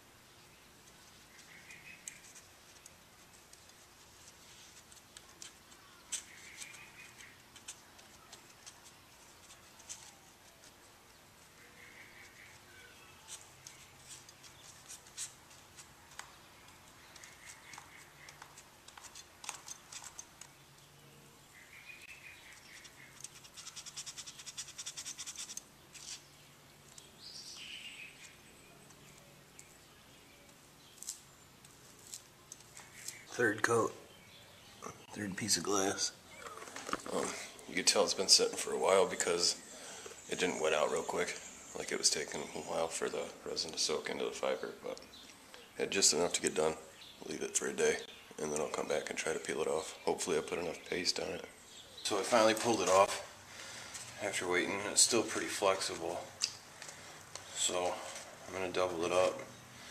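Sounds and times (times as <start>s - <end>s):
scratchy brush strokes: 0.9s - 20.4s, 22.6s - 26.4s
cloth rustling and scratching: 1.5s - 10.8s.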